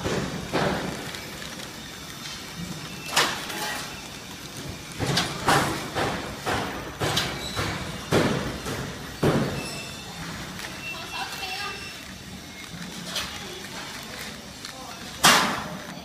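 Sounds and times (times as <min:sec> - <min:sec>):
sharp machine clacks: 0:00.0 - 0:10.0
machine mechanical hum: 0:00.0 - 0:16.0.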